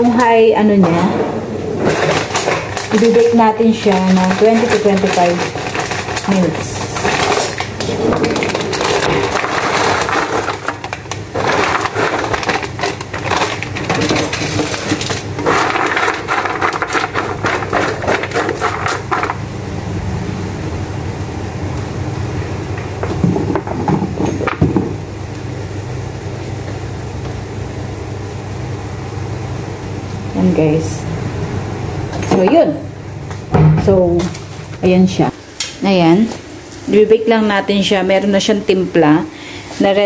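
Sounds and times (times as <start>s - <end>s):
steady low hum: 0.0s - 40.0s
plastic bag rustling and crackling: 1.7s - 19.4s
paper rustling: 1.8s - 19.4s.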